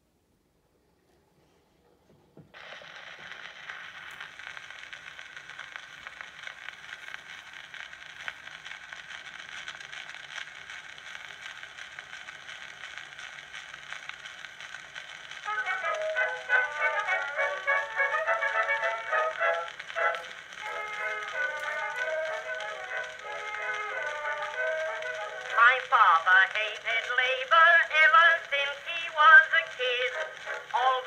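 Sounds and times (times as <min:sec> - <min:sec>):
phonograph surface hiss and crackle: 0:00.0 - 0:31.0
band music: 0:15.5 - 0:26.2.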